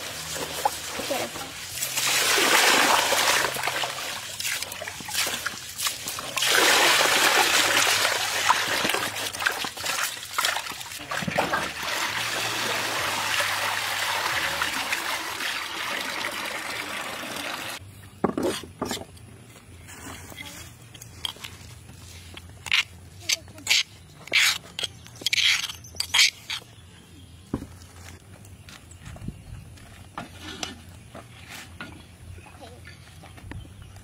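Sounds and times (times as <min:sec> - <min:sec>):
water pouring and splashing: 0:00.0 - 0:17.8
water streaming through basket: 0:00.0 - 0:17.8.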